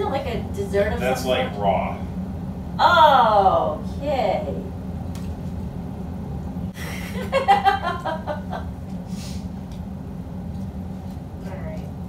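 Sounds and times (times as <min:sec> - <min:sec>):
steady low hum: 0:00.0 - 0:12.0
person chuckling: 0:06.8 - 0:08.6.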